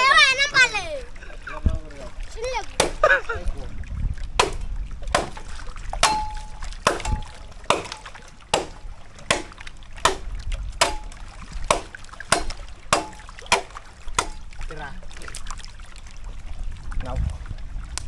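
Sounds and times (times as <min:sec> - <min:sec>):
water splashing: 0:00.0 - 0:18.0
knocks on bamboo poles: 0:02.8 - 0:03.0, 0:04.4 - 0:14.5.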